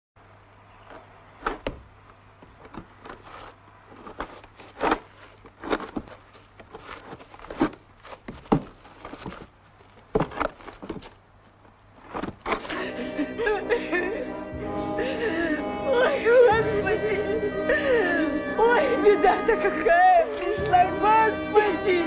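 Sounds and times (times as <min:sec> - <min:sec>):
low steady hum: 0:00.2 - 0:22.0
earth thudding on wooden coffin: 0:01.4 - 0:03.4, 0:04.0 - 0:11.2, 0:12.0 - 0:12.7.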